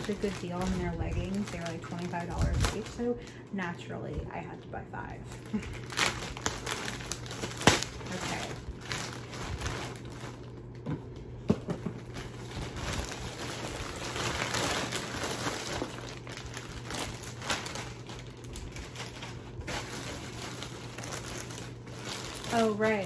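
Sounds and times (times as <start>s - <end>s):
packaging crinkling: 0.0s - 3.4s, 4.0s - 23.0s.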